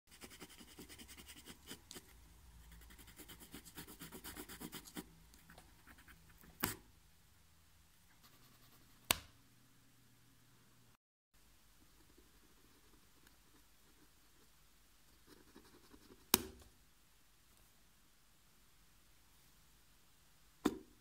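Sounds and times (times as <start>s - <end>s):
pencil scratching on paper: 0.1s - 6.8s, 15.2s - 16.4s
pencil lead snapping: 6.4s - 6.8s.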